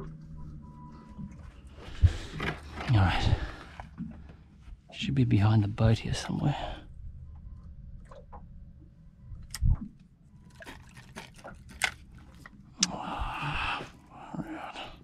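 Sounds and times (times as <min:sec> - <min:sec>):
steady low rumble: 0:00.0 - 0:10.5
water sloshing against boat hull: 0:07.3 - 0:12.7.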